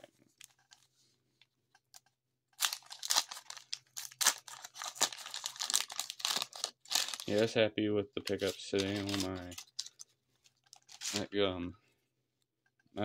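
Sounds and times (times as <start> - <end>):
wax paper wrapper crinkling and ripping: 2.5 - 7.6, 8.2 - 11.4.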